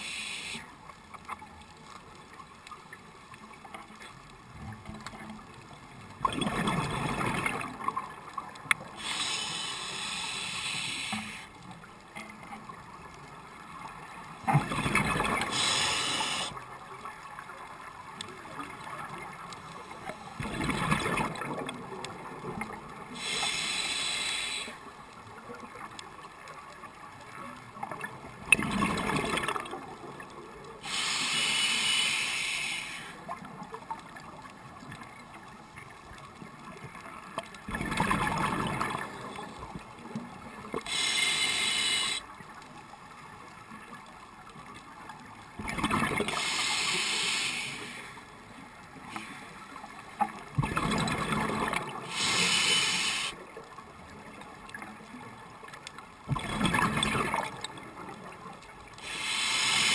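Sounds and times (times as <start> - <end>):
regulator hissing inhalations: 0.0 - 0.7, 8.9 - 11.6, 15.5 - 16.6, 23.2 - 24.8, 30.8 - 33.2, 40.8 - 42.2, 46.4 - 48.3, 52.1 - 53.4, 59.0 - 59.9.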